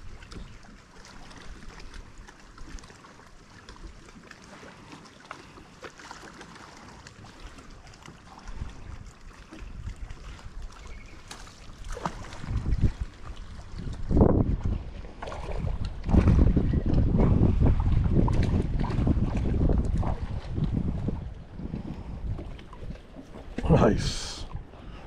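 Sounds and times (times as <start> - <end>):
water lapping at boat: 0.0 - 25.0
wind buffeting microphone: 8.5 - 11.1, 11.9 - 25.0.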